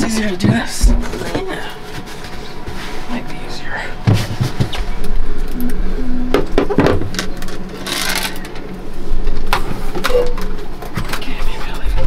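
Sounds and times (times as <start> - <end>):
short low hum: 0.8 - 10.9.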